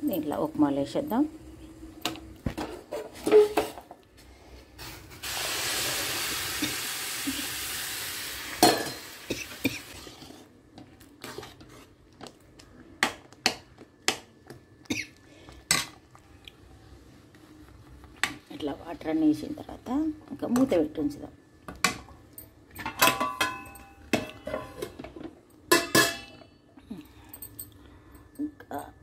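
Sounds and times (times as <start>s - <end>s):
water sizzling in hot pan: 5.2s - 9.9s.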